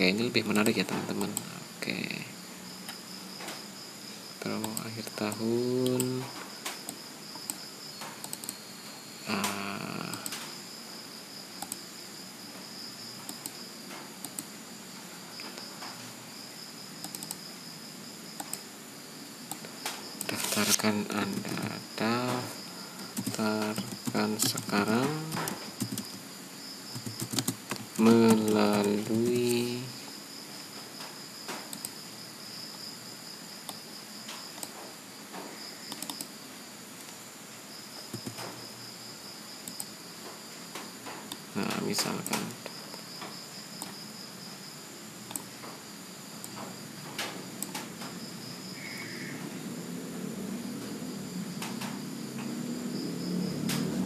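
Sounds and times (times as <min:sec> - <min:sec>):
background hiss: 0:00.0 - 0:54.0
computer keyboard keystrokes: 0:08.2 - 0:08.6, 0:17.0 - 0:17.4, 0:23.1 - 0:26.2, 0:26.9 - 0:29.6, 0:35.9 - 0:36.3, 0:38.1 - 0:38.5
mouse clicks: 0:08.2 - 0:08.6, 0:11.6 - 0:11.8, 0:17.0 - 0:17.4, 0:35.9 - 0:36.3.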